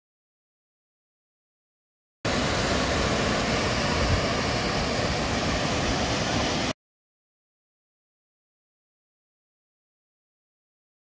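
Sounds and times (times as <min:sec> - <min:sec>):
waterfall roaring: 0:02.3 - 0:06.8.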